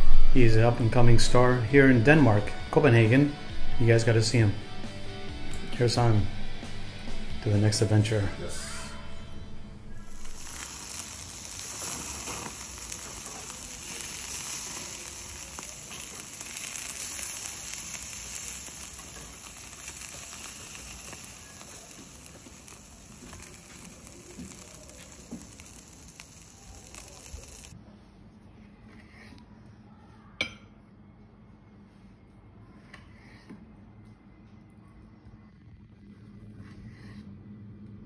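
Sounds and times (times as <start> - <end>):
charcoal crackles: 0.0 - 27.8
chicken sizzling on a grill: 9.9 - 27.8.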